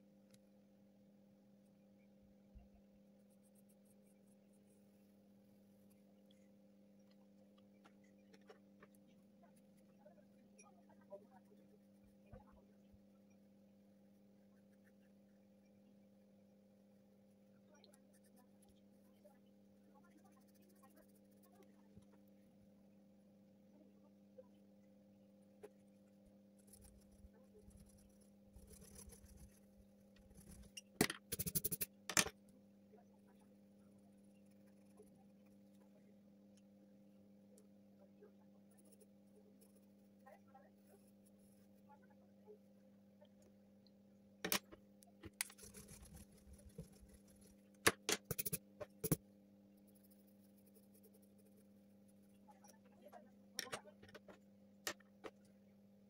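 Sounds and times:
low electrical hum: 0:00.0 - 0:56.0
pencil rustling on paper: 0:03.1 - 0:06.6, 0:20.0 - 0:22.4, 0:25.6 - 0:32.0, 0:45.3 - 0:49.2, 0:49.8 - 0:52.8
sharp scratchy pencil strokes: 0:03.2 - 0:05.0, 0:20.0 - 0:21.8, 0:26.6 - 0:32.0, 0:45.4 - 0:47.6, 0:48.2 - 0:49.2.

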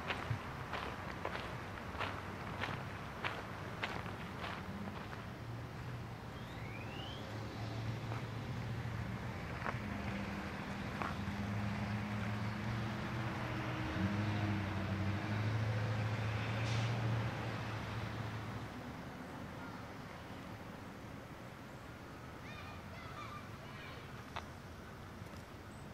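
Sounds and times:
vehicle engine humming: 0:00.0 - 0:25.9.

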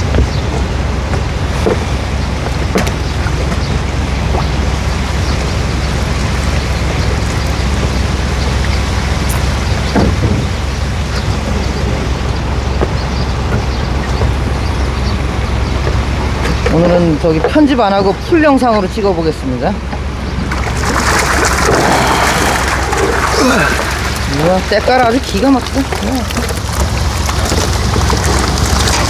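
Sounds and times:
rushing water wash: 0:00.0 - 0:12.8, 0:20.1 - 0:29.0
truck engine hum: 0:00.0 - 0:29.0.

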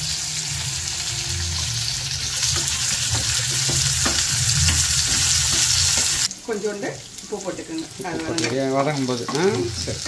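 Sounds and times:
onions sizzling in oil: 0:00.0 - 0:10.0.

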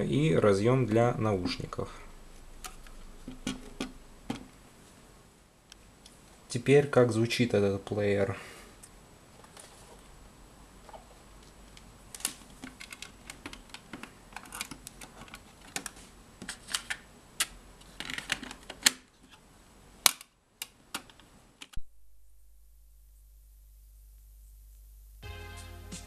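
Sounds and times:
faint steady low hum: 0:00.0 - 0:26.0
cassette player clicks and clatter: 0:12.2 - 0:19.1.

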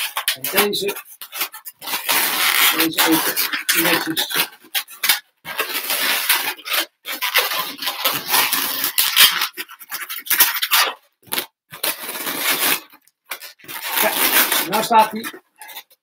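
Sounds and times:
balloons rubbing: 0:00.0 - 0:16.0.

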